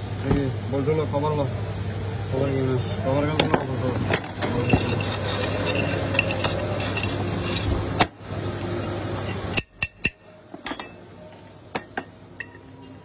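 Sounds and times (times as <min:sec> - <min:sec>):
steady background hum: 0:00.0 - 0:13.0
metal clinks and knocks: 0:03.4 - 0:07.7, 0:09.2 - 0:11.0.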